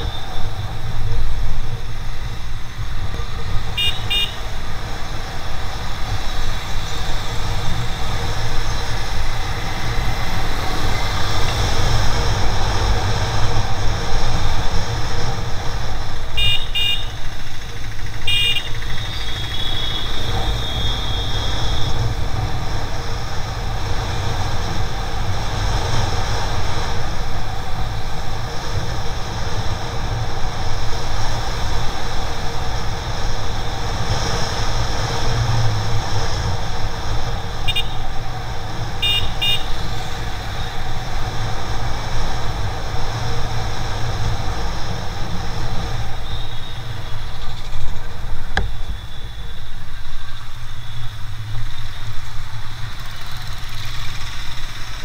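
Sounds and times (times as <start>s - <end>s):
motorcycle engine: 0.0s - 55.0s
road noise: 0.0s - 55.0s
horn beeps: 3.2s - 4.5s, 18.2s - 22.0s, 37.6s - 38.1s, 39.0s - 39.8s
high horn tone: 3.2s - 4.7s, 16.4s - 17.3s, 18.3s - 22.1s, 37.6s - 38.2s, 39.0s - 40.0s.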